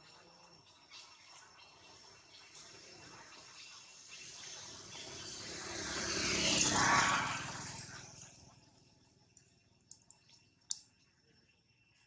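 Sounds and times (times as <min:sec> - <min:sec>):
vehicle passing by: 0:04.2 - 0:08.7.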